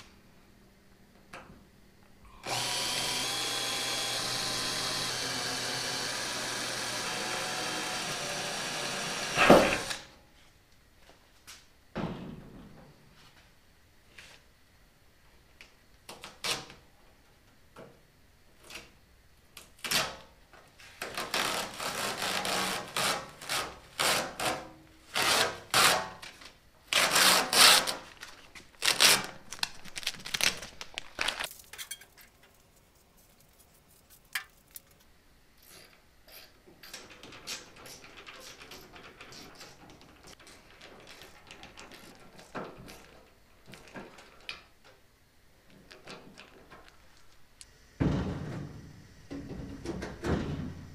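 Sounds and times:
masking tape ripping off metal: 21.0 - 32.0
faint handling and tool sounds: 27.9 - 48.7.

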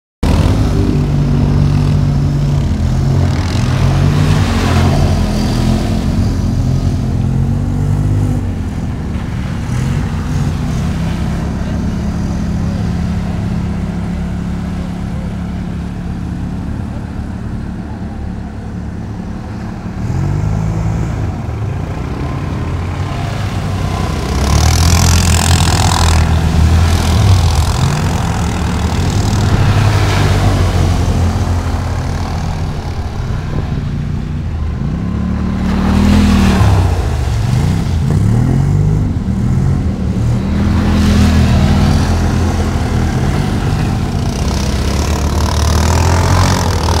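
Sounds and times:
quad bike engine revving: 0.2 - 47.0
water splashing: 2.9 - 7.0, 23.1 - 47.0.

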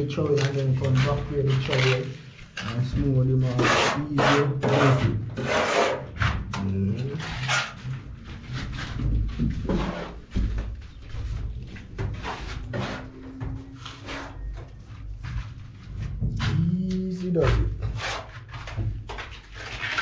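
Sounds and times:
sponge float scraping wet plaster: 0.0 - 6.4, 16.4 - 20.0.

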